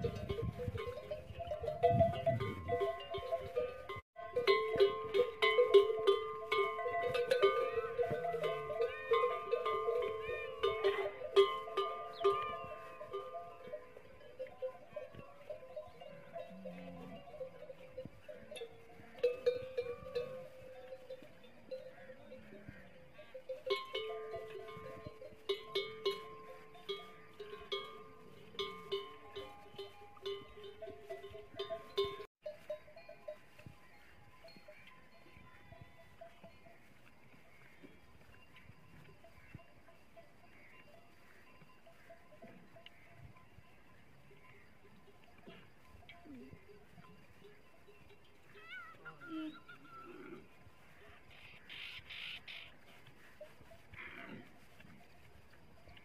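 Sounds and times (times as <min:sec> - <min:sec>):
camel bells clanking: 0:00.0 - 0:56.0.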